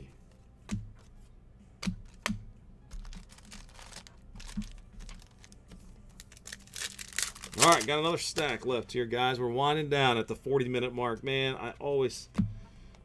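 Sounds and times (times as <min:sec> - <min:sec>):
cards tapping on table: 0:01.8 - 0:03.1
cards rustling and sliding: 0:02.9 - 0:08.7.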